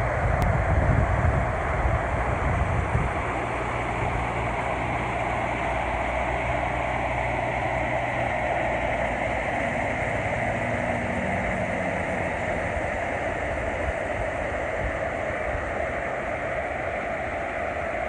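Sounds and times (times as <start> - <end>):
floodwater rushing in canal: 0.0 - 18.0
low hum: 0.0 - 18.0.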